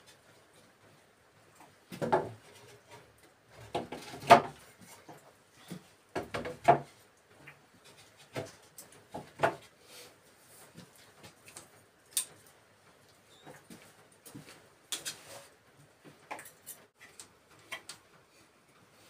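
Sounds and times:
wooden knocks and scrapes: 0:01.9 - 0:07.0.

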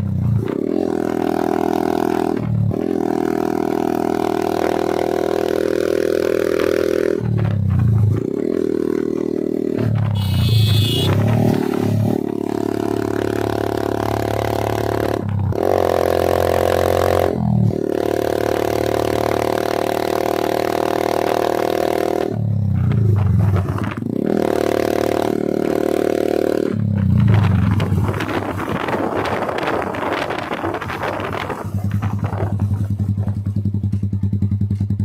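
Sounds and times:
motorcycle engine revving: 0:00.0 - 0:35.0
wind rushing over microphone: 0:27.0 - 0:33.4.

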